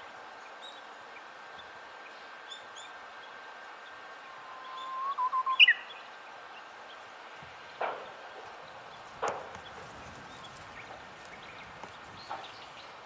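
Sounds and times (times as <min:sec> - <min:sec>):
small birds chirping: 0:00.3 - 0:13.0
bird singing whistled song: 0:04.2 - 0:06.1.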